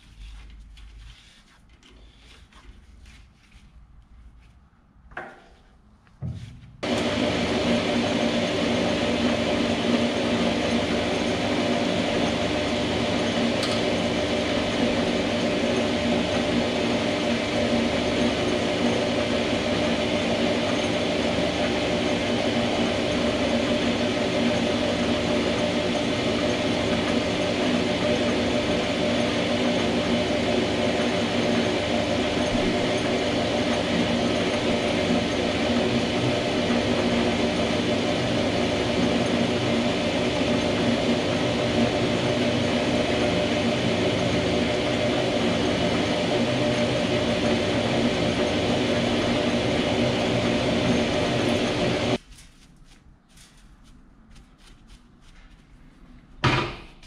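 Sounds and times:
metal lathe running: 6.8s - 52.2s.

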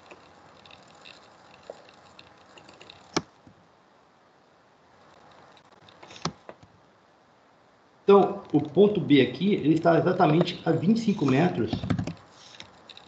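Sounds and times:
computer mouse clicking: 0.0s - 3.3s
faint room noise: 0.0s - 13.0s.

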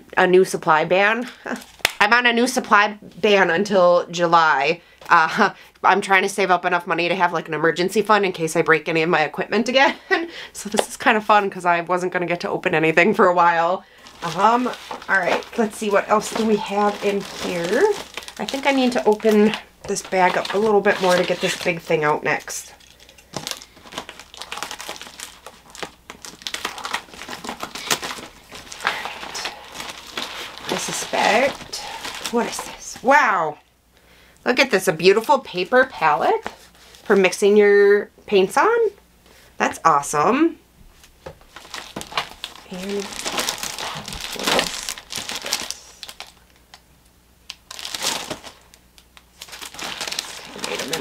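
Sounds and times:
plastic bag crinkling: 13.9s - 33.1s, 41.4s - 46.8s, 47.5s - 51.0s.

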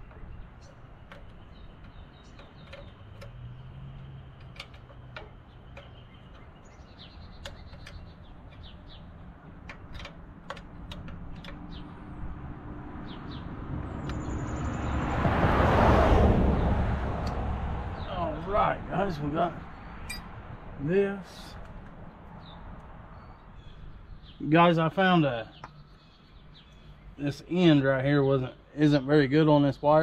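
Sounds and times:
tool clicking on wiring: 0.0s - 9.0s, 9.6s - 11.8s
birds chirping: 0.0s - 15.4s, 16.5s - 30.0s
vehicle passing: 12.2s - 20.8s.

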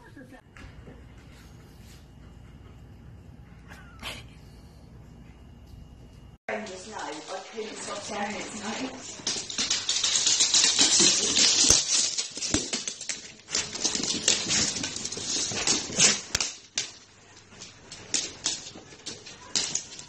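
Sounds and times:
dogs scrabbling on fabric bed: 6.5s - 20.0s.

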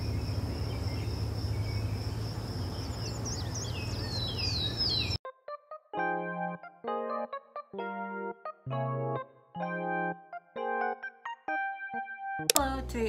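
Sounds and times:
insect trill: 0.0s - 4.2s
birds chirping: 0.0s - 5.2s.

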